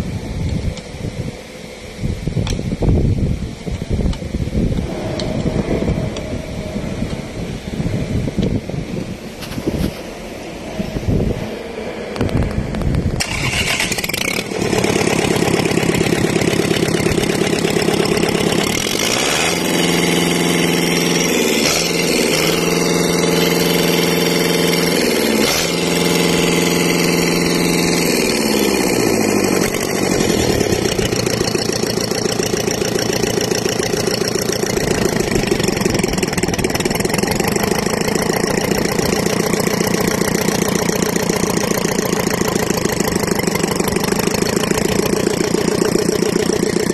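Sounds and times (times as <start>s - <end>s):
diesel engine running: 0.0s - 46.9s.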